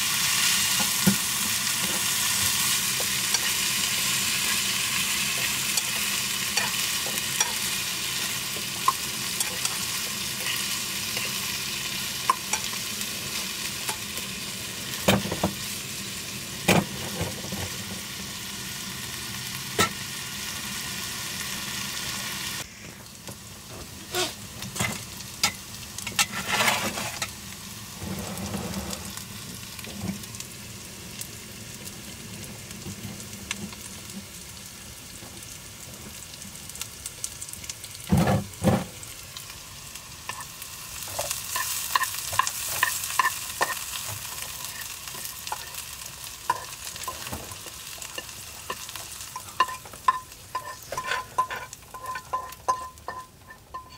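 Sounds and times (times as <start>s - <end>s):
vegetables sizzling in a pan: 0.0s - 53.9s
fork scraping pan: 26.1s - 27.3s, 41.1s - 45.8s, 48.1s - 53.9s
fork clinking against pan: 49.6s - 53.9s.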